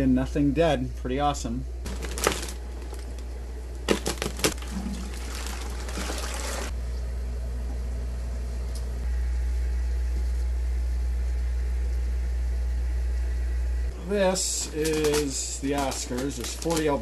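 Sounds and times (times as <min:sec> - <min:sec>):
steady low hum: 0:00.0 - 0:17.0
plastic bag crinkling: 0:01.9 - 0:06.0, 0:14.7 - 0:17.0
water pouring into plastic bucket: 0:04.4 - 0:06.7.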